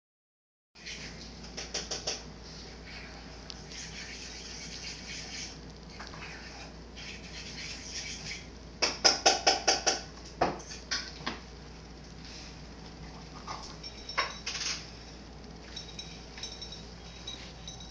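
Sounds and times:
glass jar clinking on wooden floor: 13.6 - 14.8, 15.6 - 17.9.

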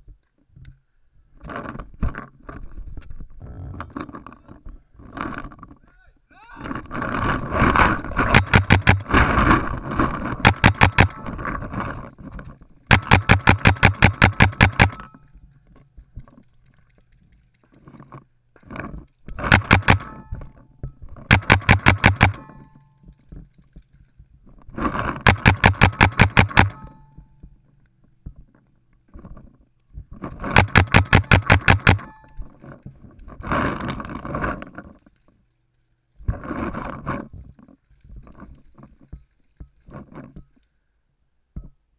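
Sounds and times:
paintball marker firing rapid shots: 7.8 - 9.4, 10.4 - 11.4, 12.9 - 15.1, 19.4 - 20.3, 21.3 - 22.7, 25.2 - 27.0, 30.4 - 32.2
faint scattered shots: 21.3 - 22.8, 30.4 - 32.2.

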